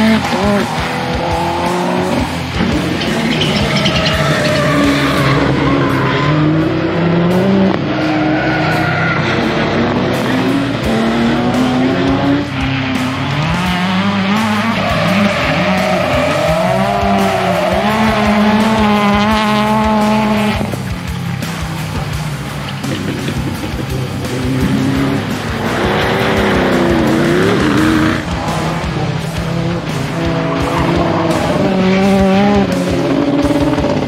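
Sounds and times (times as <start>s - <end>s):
rally car engines revving: 0.0s - 34.0s.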